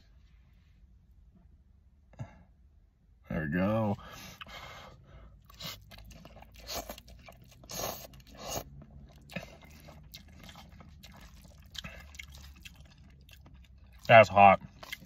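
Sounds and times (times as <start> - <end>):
person chewing: 5.3 - 15.0
person slurping noodles: 5.5 - 12.7.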